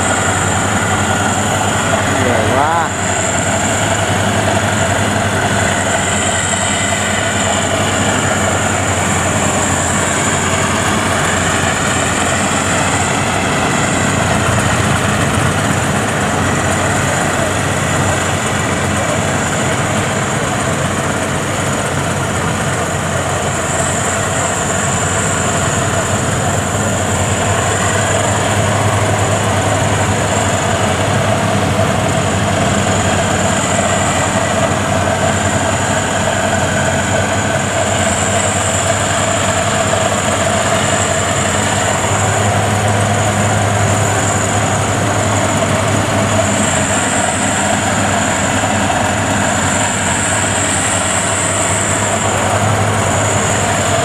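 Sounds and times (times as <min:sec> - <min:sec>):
combine harvester engine droning: 0:00.0 - 0:54.0
thin high whine: 0:00.0 - 0:54.0.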